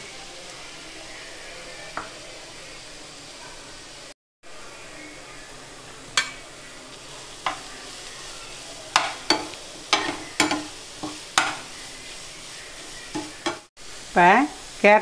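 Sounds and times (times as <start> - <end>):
vegetables sizzling in a pan: 0.0 - 15.0
metal spatula knocking on pan: 8.9 - 11.6.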